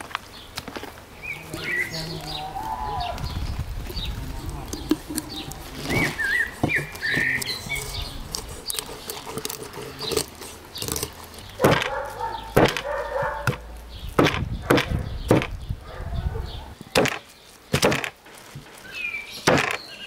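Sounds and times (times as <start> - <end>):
bird chirping: 0.2 - 20.0
knife chopping fish on table: 10.8 - 13.6, 19.4 - 19.8.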